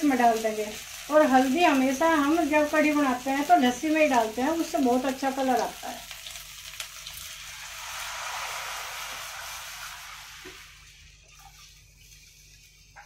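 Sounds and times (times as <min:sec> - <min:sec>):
batter sizzling in hot pan: 0:00.0 - 0:13.0
liquid pouring: 0:07.2 - 0:12.0.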